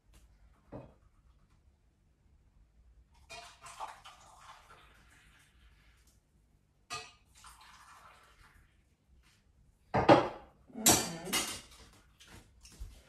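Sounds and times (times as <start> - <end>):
tea trickling into cups: 7.2 - 8.7.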